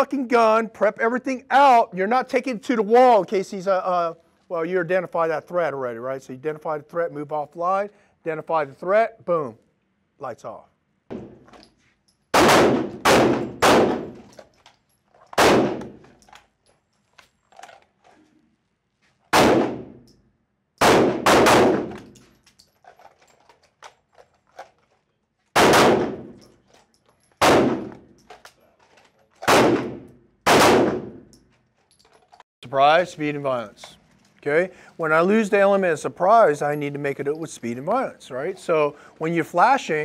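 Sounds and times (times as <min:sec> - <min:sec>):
pistol shots with echo: 0:12.3 - 0:14.3, 0:15.4 - 0:16.0, 0:19.3 - 0:20.1, 0:20.8 - 0:22.2, 0:25.6 - 0:26.4, 0:27.4 - 0:28.0, 0:29.4 - 0:31.3.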